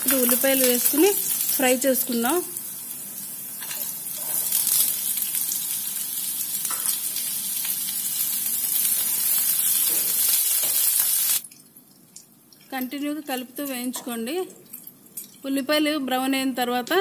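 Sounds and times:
onions sizzling in oil: 0.0 - 11.4.

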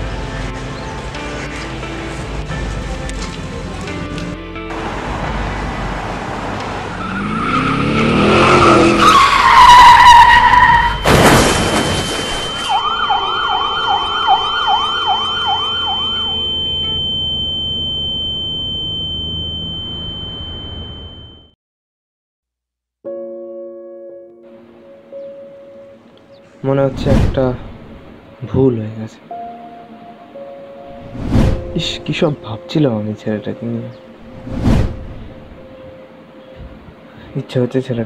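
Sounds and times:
rising sliding tones: 5.8 - 9.6
heavy hit: 11.0 - 12.6
high steady ringing tone: 12.0 - 13.7, 14.3 - 21.6
quick siren-like sweeps: 12.0 - 21.4.

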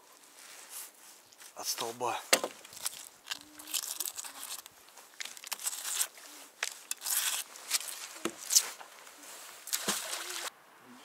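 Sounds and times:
magnet splashing into water: 9.7 - 10.5.

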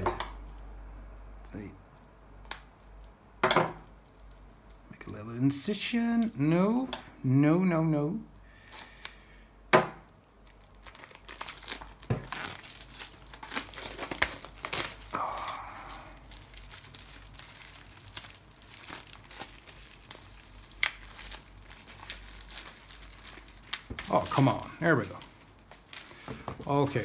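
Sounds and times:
plastic wrap crinkling: 10.0 - 27.0
plastic wrap tearing: 10.0 - 27.0.

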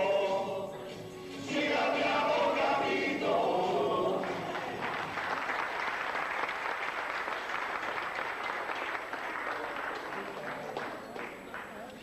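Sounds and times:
group of voices singing: 0.0 - 5.0
audience applause: 4.2 - 12.0.

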